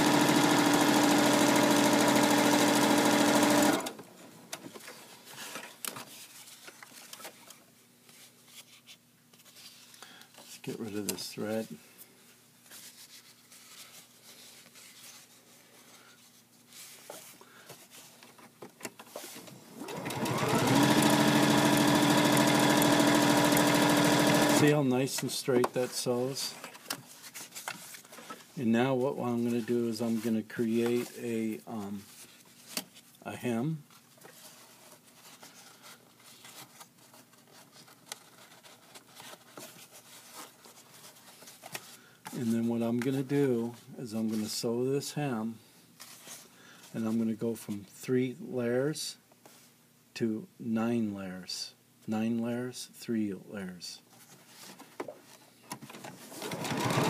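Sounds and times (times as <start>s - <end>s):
sewing machine motor whine: 0.0s - 3.9s, 19.8s - 24.7s, 56.4s - 57.0s
fabric rustling: 12.6s - 18.2s.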